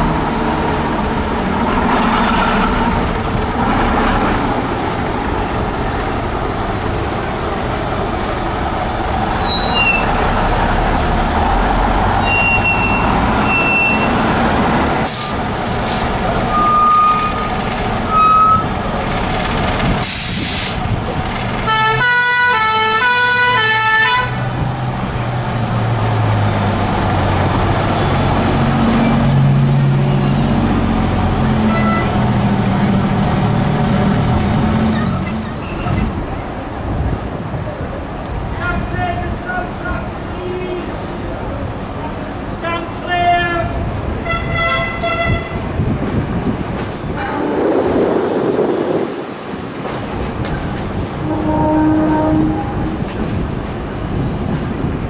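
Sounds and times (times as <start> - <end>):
bus engines driving past: 0.0 - 55.0
short hiss: 15.1 - 16.1, 20.0 - 21.3
two-tone emergency horn: 21.7 - 24.4, 31.7 - 32.1, 44.2 - 45.6, 51.2 - 52.8.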